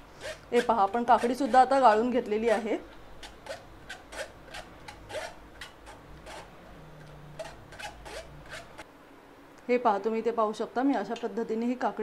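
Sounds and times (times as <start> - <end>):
metal spoon scraping mesh strainer: 0.0 - 6.6, 7.3 - 8.8.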